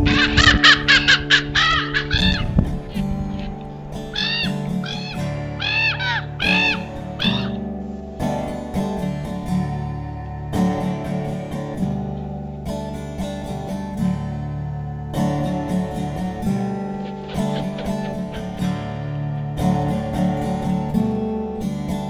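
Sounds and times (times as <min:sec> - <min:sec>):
bird cawing: 0:00.0 - 0:07.7, 0:16.6 - 0:19.0
acoustic guitar strumming chords: 0:00.0 - 0:22.0.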